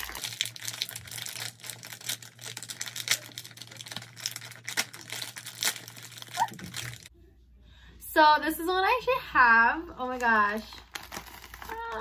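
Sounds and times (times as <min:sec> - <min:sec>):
plastic packaging crinkling: 0:00.0 - 0:07.1, 0:10.0 - 0:12.0.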